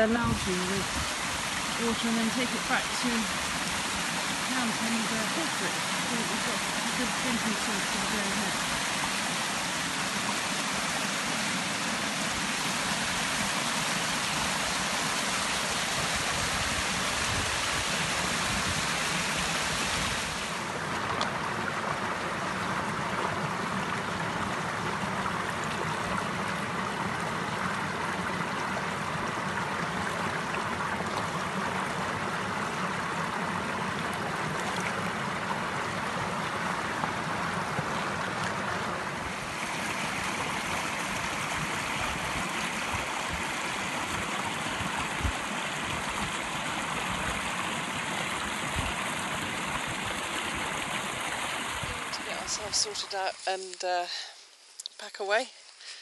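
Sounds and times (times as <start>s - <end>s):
stream splashing over rocks: 0.0s - 53.8s.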